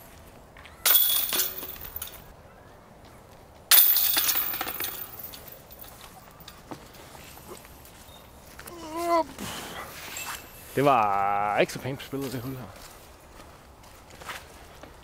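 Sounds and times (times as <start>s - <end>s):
disc striking basket chains: 0.8s - 2.3s, 3.7s - 6.6s.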